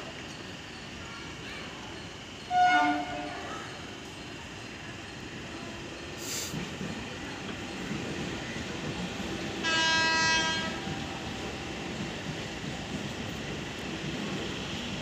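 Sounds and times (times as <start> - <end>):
train rumbling: 0.0 - 15.0
train horn blast: 2.5 - 3.4, 9.6 - 10.8.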